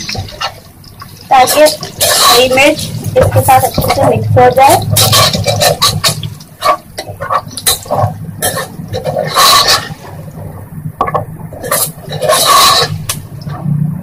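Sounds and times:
spatula scraping metal pot: 0:01.2 - 0:10.4, 0:11.5 - 0:13.6.

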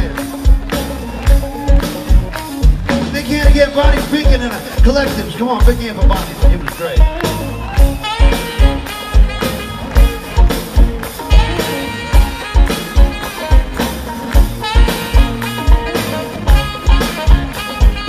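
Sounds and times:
electric bass: 0:00.0 - 0:18.0
electric guitars: 0:00.0 - 0:18.0
saxophone lead: 0:06.4 - 0:18.0.

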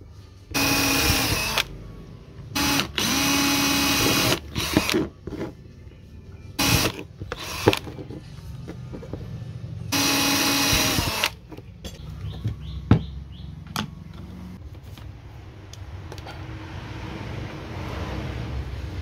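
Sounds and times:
cordless power drill running: 0:00.6 - 0:01.7, 0:02.6 - 0:05.0, 0:06.6 - 0:07.9, 0:09.9 - 0:11.4.

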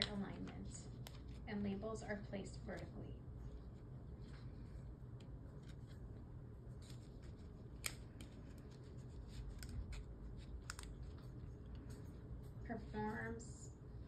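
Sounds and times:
label peeling clicks and crackles: 0:06.8 - 0:12.2.

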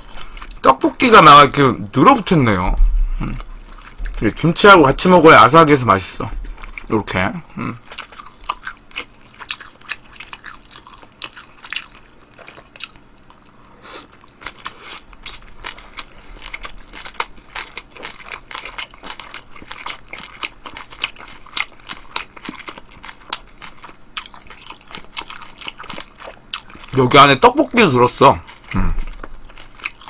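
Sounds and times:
crunchy chewing: 0:06.4 - 0:30.0.

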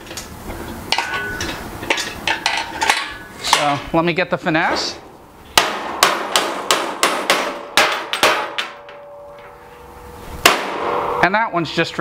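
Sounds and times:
metallic ring: 0:00.9 - 0:03.3, 0:08.7 - 0:11.5
hammer beating on metal: 0:05.6 - 0:09.5, 0:10.4 - 0:11.5.

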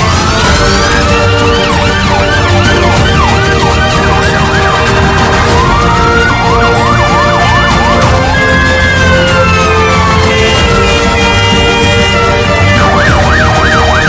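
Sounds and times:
background music with steady beat: 0:00.0 - 0:14.0
emergency vehicle siren wailing: 0:00.0 - 0:14.0.

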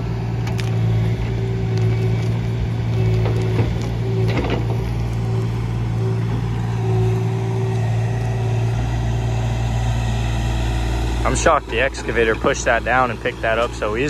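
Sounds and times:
diesel engine running: 0:00.0 - 0:14.0
hydraulic whine: 0:00.0 - 0:14.0
clatter of dirt and roots: 0:00.4 - 0:05.6, 0:11.2 - 0:14.0.

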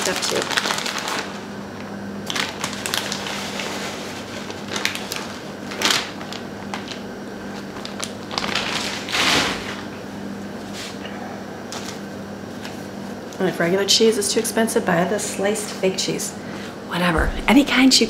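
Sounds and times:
plastic bag crinkling: 0:00.0 - 0:01.5, 0:02.2 - 0:09.9
steady low hum: 0:00.0 - 0:18.0.

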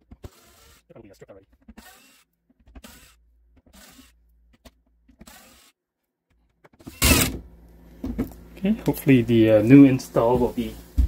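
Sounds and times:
cordless drill running: 0:00.2 - 0:00.9, 0:01.7 - 0:04.2, 0:05.2 - 0:05.8.

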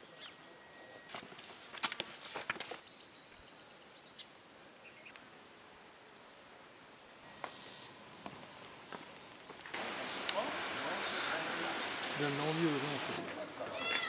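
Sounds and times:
steady hiss: 0:04.5 - 0:13.4.

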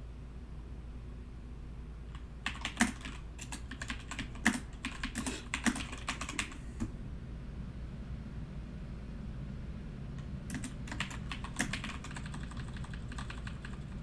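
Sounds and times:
computer keyboard typing: 0:02.1 - 0:06.7, 0:10.5 - 0:14.0.

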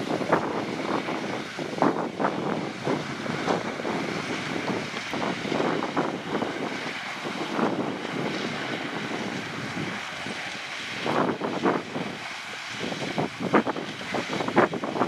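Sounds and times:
sugarcane harvester machine noise: 0:00.0 - 0:15.0.

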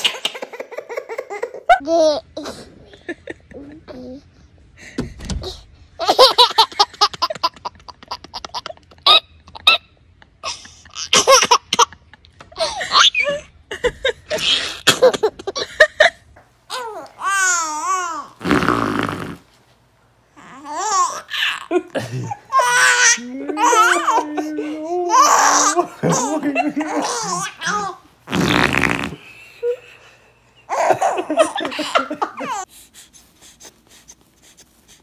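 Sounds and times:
baby giggling: 0:20.7 - 0:28.0, 0:30.7 - 0:32.7
baby laughing squeals: 0:22.5 - 0:24.3.

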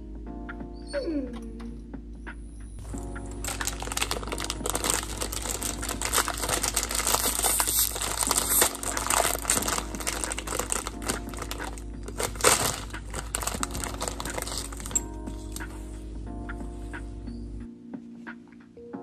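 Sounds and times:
plastic packet crinkling: 0:02.8 - 0:15.6.

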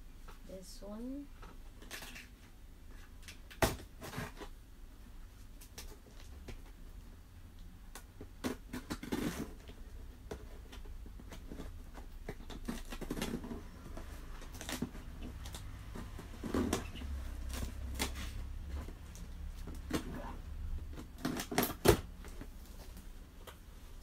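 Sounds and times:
scissors cutting cardboard: 0:03.6 - 0:04.5, 0:08.4 - 0:09.7, 0:10.3 - 0:20.3.

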